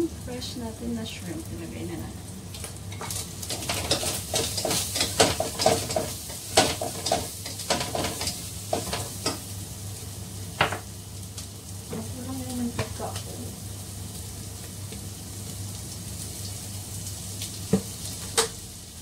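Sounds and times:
shrimp sizzling in oil: 0.0 - 19.0
spatula scraping in pan: 2.9 - 9.5.

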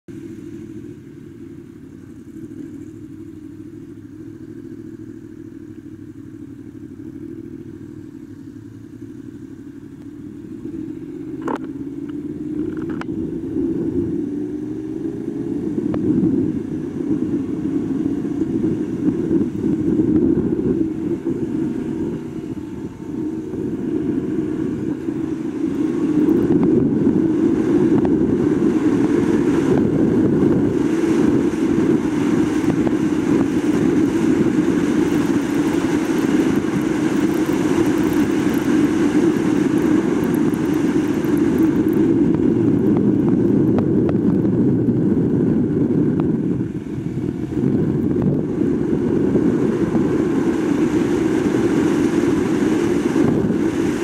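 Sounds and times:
motorcycle engine idling and accelerating: 0.0 - 54.0
wind on microphone: 11.4 - 54.0
gear clicks: 34.9 - 42.1.

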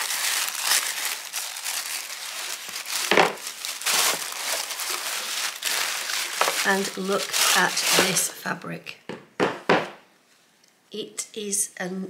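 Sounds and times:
tissue paper crinkling: 0.0 - 8.4.

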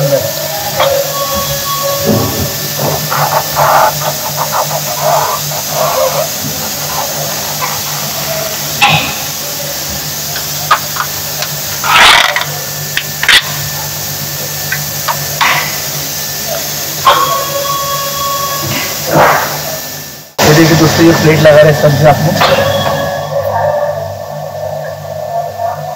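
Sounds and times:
low machine hum: 0.0 - 25.9
metal plate scraping: 0.8 - 9.1.

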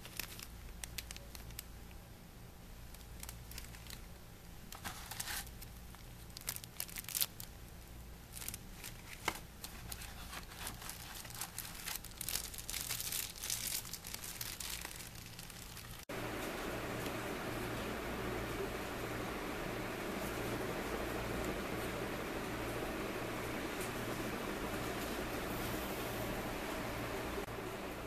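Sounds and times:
plastic wrapping crinkling: 0.0 - 2.0, 2.8 - 16.1.

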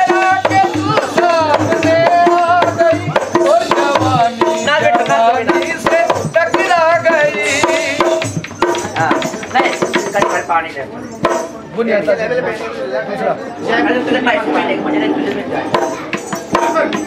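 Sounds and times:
man singing: 0.0 - 10.3.

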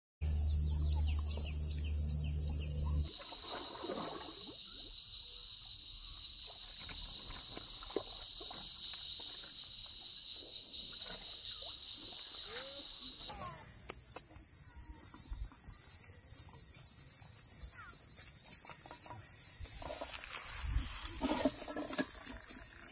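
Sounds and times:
birds calling: 0.2 - 3.1
low steady hum: 0.2 - 3.1
insects shrilling: 0.2 - 3.2, 12.3 - 22.9.

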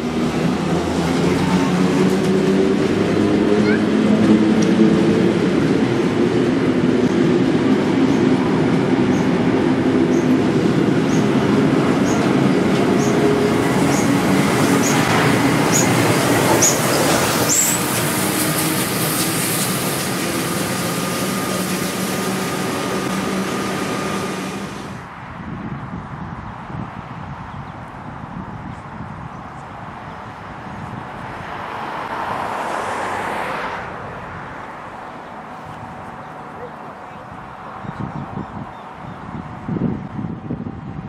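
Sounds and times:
electric train passing: 0.0 - 25.2.

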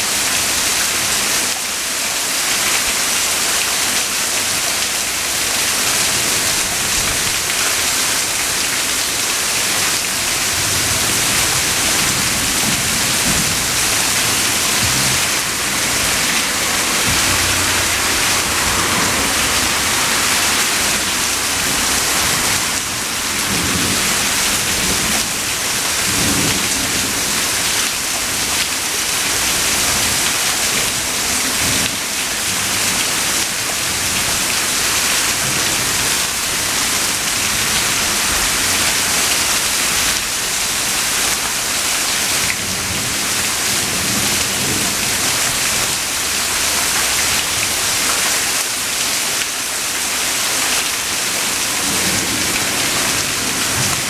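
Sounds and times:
heavy rain falling: 0.0 - 54.0
low thunder rumbling: 10.5 - 22.5.

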